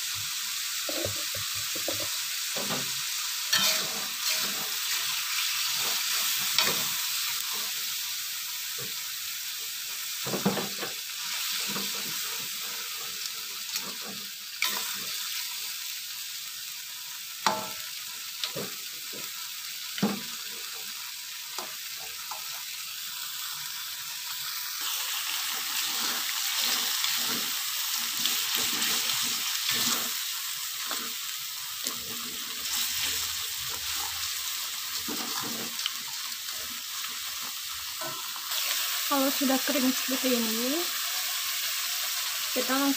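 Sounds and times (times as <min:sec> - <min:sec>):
food sizzling in a wok: 0:00.0 - 0:42.9
metal spatula scraping a pan: 0:00.9 - 0:07.0.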